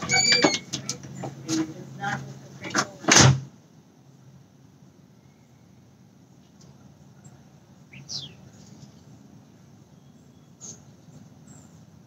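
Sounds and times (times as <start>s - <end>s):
faint steady background hum: 0.0s - 12.0s
bird chirping: 7.1s - 11.9s.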